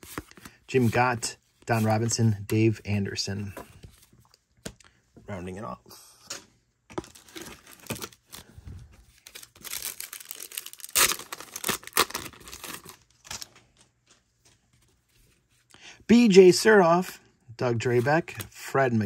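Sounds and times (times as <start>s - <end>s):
wrapper tearing and crinkling: 9.2s - 13.5s.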